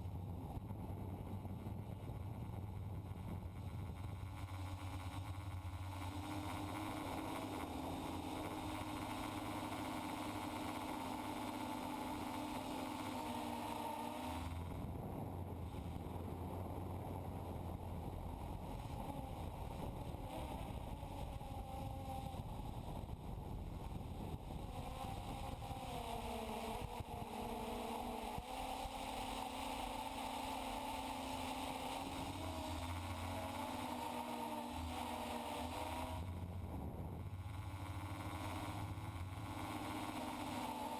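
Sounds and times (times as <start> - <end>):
wind noise on microphone: 0.0 - 5.6, 14.6 - 28.2
drone motors whining: 3.8 - 40.9.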